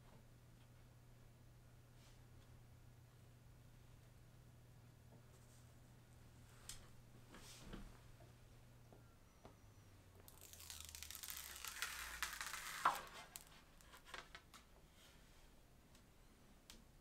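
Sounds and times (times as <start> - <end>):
plastic film peeling: 10.2 - 14.6.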